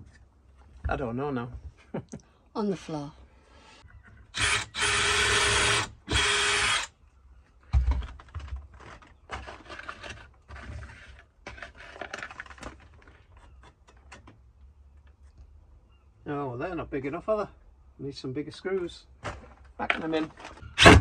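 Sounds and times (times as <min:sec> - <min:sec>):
cordless drill driving a screw: 0:04.4 - 0:06.9.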